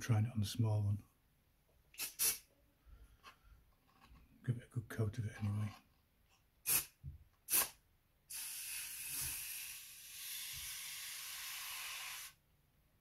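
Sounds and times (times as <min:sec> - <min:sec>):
aerosol can spraying: 0:02.0 - 0:02.4, 0:06.7 - 0:12.4.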